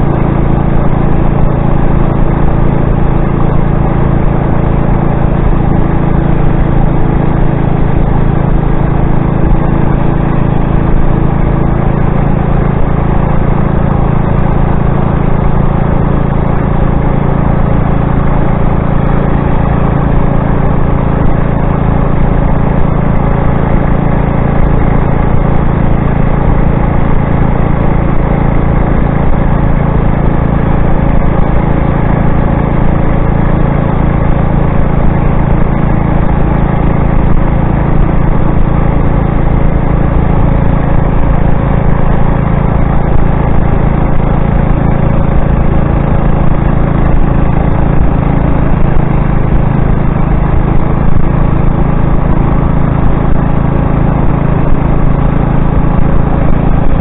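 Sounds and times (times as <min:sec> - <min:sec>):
motorized bicycle engine drone: 0:00.0 - 0:57.0.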